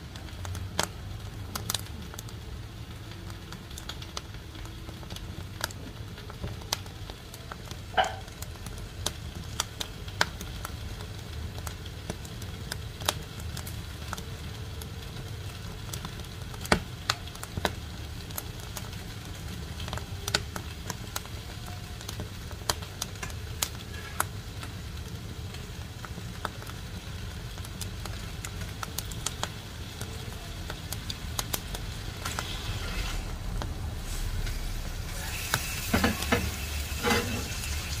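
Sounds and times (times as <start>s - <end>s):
wood fire crackling: 0.0s - 38.0s
low steady rumble: 27.2s - 38.0s.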